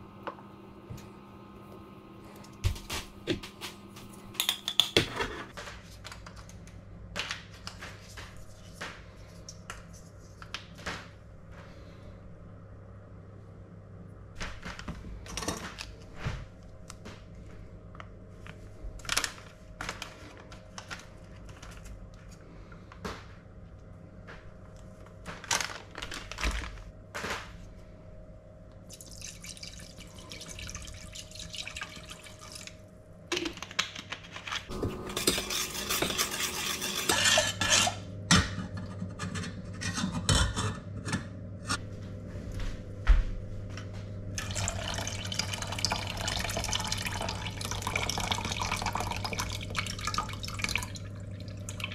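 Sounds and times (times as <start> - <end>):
liquid pouring into pot: 28.9 - 32.8, 44.4 - 51.9.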